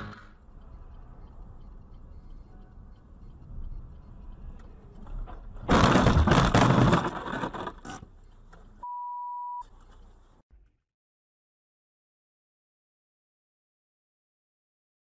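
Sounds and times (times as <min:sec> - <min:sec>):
short steady beep: 0:00.0 - 0:04.8, 0:08.8 - 0:09.7
loud crash: 0:05.6 - 0:07.6
debris pelting windscreen: 0:05.7 - 0:07.6.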